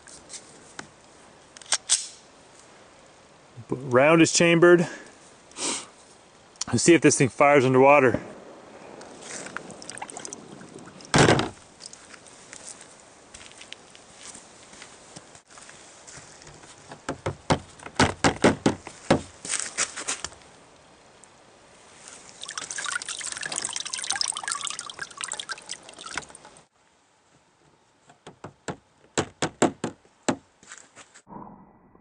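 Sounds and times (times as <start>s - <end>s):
water trickling and dripping: 9.0s - 12.1s, 22.2s - 26.7s
water splashing in a plastic tub: 9.2s - 11.6s, 22.3s - 26.6s.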